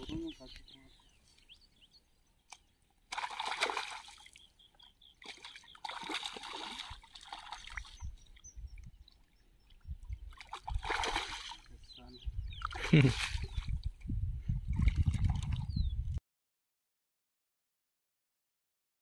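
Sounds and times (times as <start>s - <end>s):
fish splashing in water: 3.1s - 4.5s, 5.2s - 8.0s, 10.2s - 11.7s.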